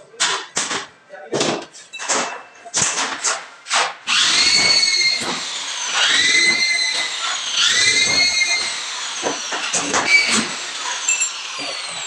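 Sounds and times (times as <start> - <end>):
electric drill motor whine: 4.1 - 12.0.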